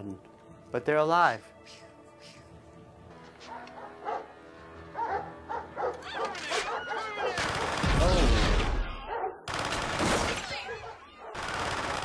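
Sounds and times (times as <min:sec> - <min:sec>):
dogs barking and yelping: 0:03.4 - 0:07.6, 0:08.9 - 0:09.5, 0:10.5 - 0:11.4.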